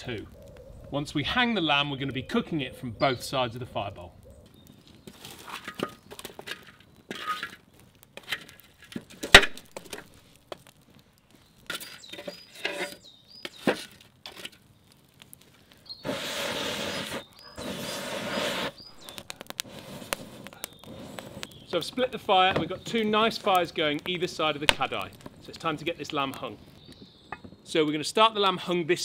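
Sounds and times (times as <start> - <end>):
embers scraping across bowl: 0.0 - 27.9
embers rattling: 0.0 - 28.2.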